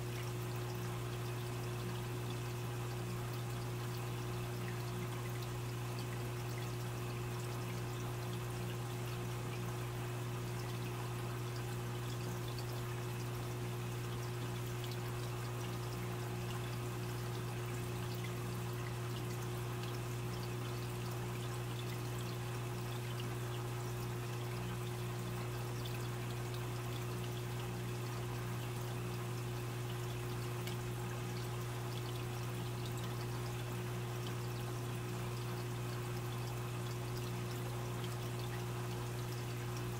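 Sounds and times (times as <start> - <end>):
filter low hum: 0.0 - 39.9
water trickling and bubbling: 0.0 - 39.9.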